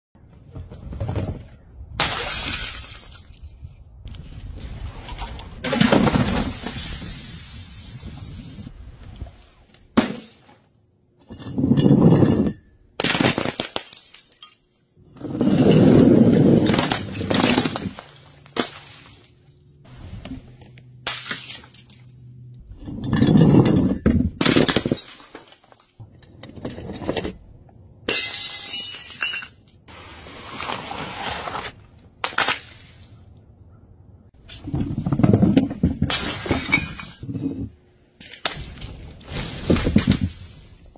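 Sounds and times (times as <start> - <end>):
glass bottles smashing: 2.0 - 3.6, 16.6 - 19.1, 21.0 - 22.2, 24.4 - 26.0, 28.1 - 29.8, 36.1 - 37.3.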